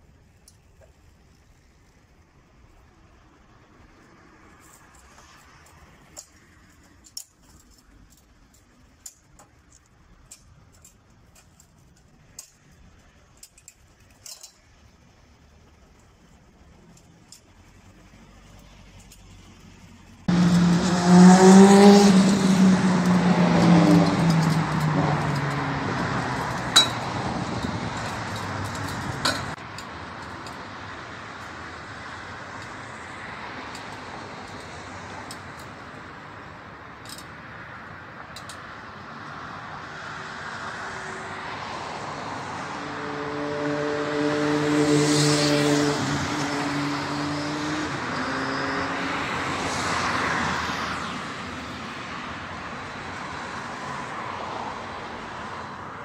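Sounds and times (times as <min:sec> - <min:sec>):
traffic hiss: 0:00.0 - 0:21.2
engine hum: 0:00.0 - 0:56.0
vehicle engine passing: 0:18.0 - 0:36.4, 0:39.2 - 0:56.0.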